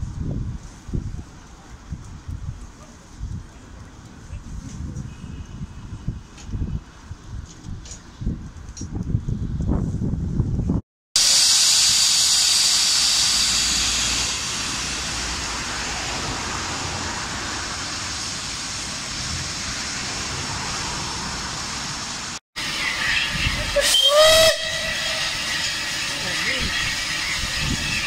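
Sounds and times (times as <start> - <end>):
short rising pitched sound: 11.2 - 16.7
steam hissing: 11.2 - 28.0.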